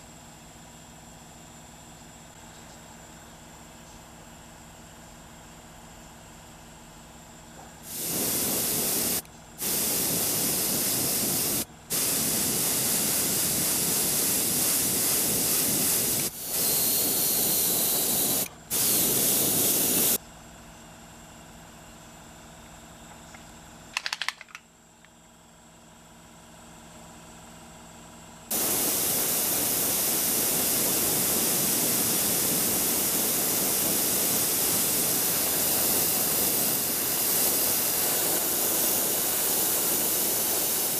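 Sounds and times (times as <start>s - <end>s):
steady hum: 7.6s - 20.2s, 28.5s - 40.9s
airbrush spraying hiss: 7.8s - 20.2s, 28.5s - 40.9s.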